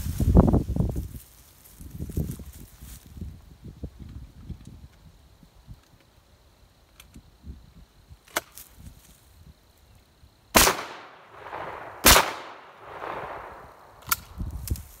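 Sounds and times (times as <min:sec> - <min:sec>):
shotgun shots echoing: 0:10.6 - 0:14.3
sharp click: 0:14.0 - 0:14.8.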